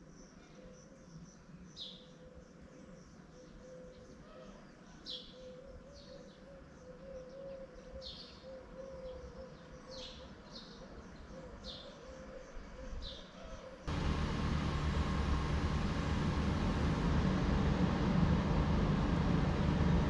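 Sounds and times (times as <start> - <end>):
outdoor background noise: 0.0 - 20.0
faint steady hum: 13.9 - 20.0.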